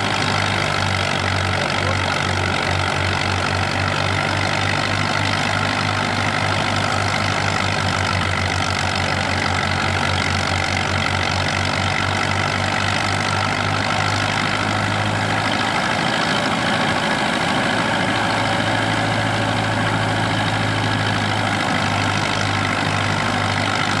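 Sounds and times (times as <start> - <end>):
thresher machine noise: 0.0 - 24.0
tractor diesel engine running: 0.0 - 24.0.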